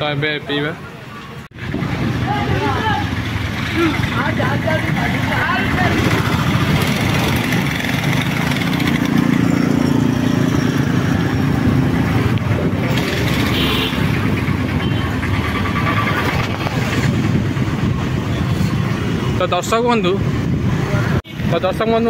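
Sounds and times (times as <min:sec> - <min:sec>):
road and traffic noise: 0:00.0 - 0:22.0
motorbike engine running: 0:12.4 - 0:17.9.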